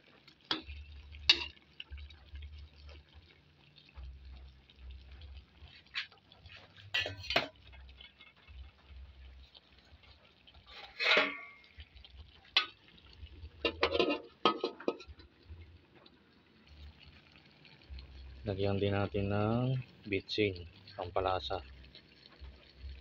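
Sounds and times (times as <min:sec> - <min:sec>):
utensil scraping a wok: 0:05.6 - 0:08.6, 0:10.0 - 0:11.8, 0:13.6 - 0:15.2
metal clanks: 0:06.8 - 0:08.3, 0:10.7 - 0:11.7, 0:13.6 - 0:15.2.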